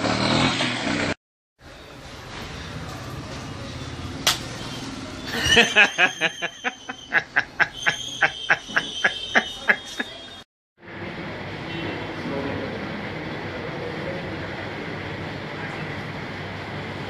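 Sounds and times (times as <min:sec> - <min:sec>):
person laughing: 0:05.3 - 0:10.2.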